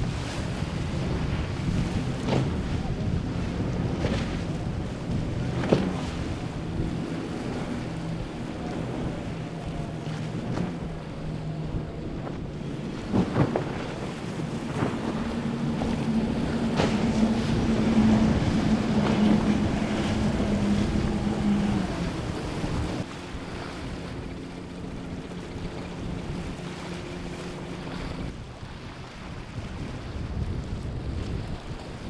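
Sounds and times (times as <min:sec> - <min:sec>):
hull spray and waves: 0:00.0 - 0:32.0
outboard motors droning: 0:00.0 - 0:32.0
wind: 0:00.0 - 0:32.0.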